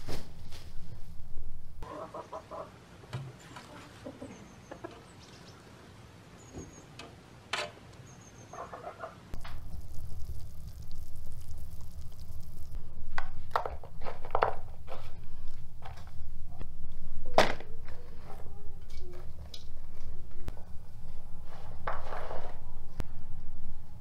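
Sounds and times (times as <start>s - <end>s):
loud low rumbling: 0.0s - 1.8s, 9.4s - 13.2s
chickens clucking: 1.8s - 2.8s, 3.4s - 5.2s, 8.5s - 9.4s
high chirps: 9.4s - 12.9s.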